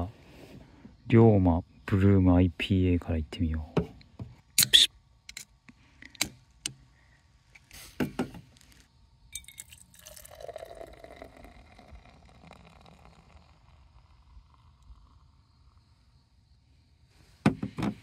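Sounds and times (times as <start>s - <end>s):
can opening crack and hiss: 7.6s - 8.9s
beer pouring into metal tumbler: 9.4s - 15.4s.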